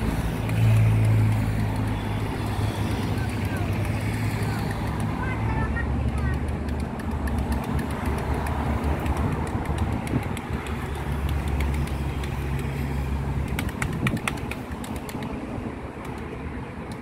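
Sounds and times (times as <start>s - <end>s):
vehicle engines rumbling: 0.0s - 17.0s
sharp clicks: 13.4s - 15.4s.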